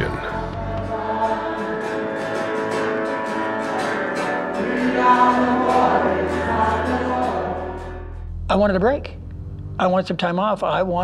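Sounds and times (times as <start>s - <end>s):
choir singing worship music: 0.0s - 8.4s.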